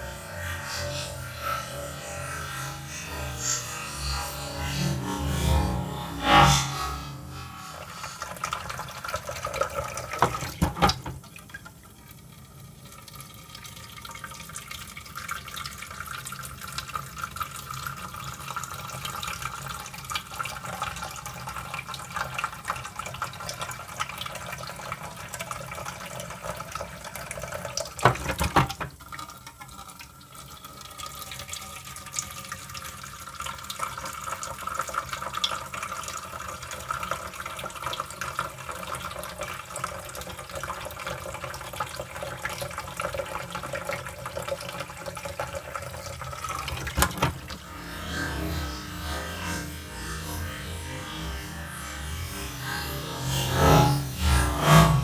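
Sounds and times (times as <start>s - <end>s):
tap water running and splashing: 7.2s - 54.4s
splash and clatter of tumbler: 28.0s - 29.0s.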